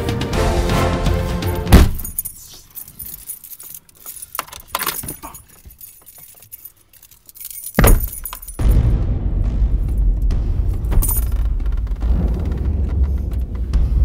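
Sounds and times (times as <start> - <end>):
car keys jangling: 1.8 - 8.7, 10.9 - 11.3.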